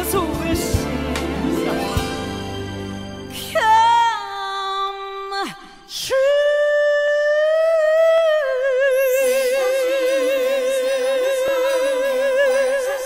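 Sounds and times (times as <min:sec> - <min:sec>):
musical accompaniment: 0:00.0 - 0:04.4.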